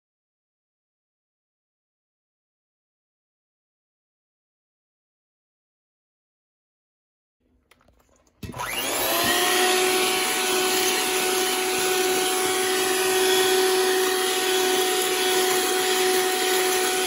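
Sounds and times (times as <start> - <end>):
stand mixer motor whine: 8.4 - 17.0
whisk beating in metal bowl: 8.7 - 17.0.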